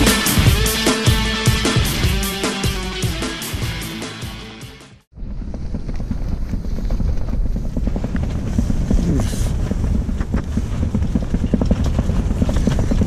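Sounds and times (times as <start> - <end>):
low rumble of wind: 5.1 - 13.0
tent fabric flapping and snapping: 5.1 - 13.0.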